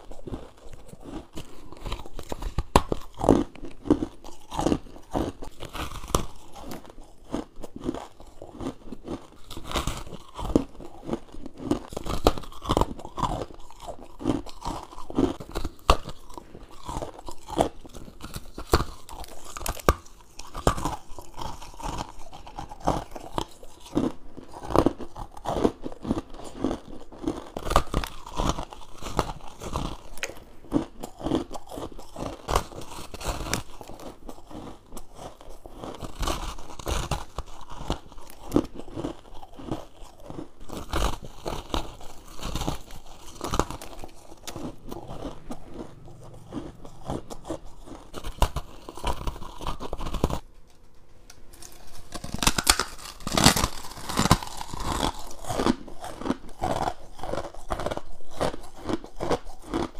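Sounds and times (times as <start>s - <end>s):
chewing and crunching ice: 0.0s - 50.9s, 51.5s - 59.9s.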